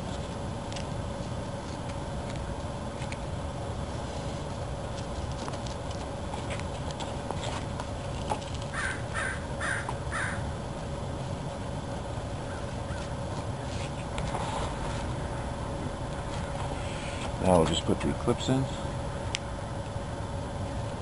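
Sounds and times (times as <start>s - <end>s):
low outdoor rumble: 0.0s - 21.0s
bird calling: 8.7s - 10.5s, 12.4s - 13.8s.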